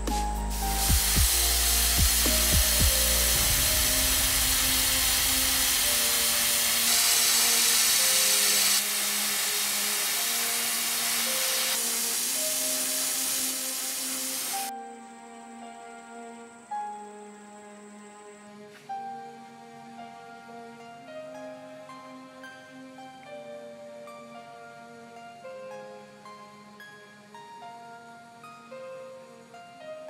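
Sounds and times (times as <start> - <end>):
electronic music: 0.0 - 8.5
airbrush spraying hiss: 0.0 - 14.7.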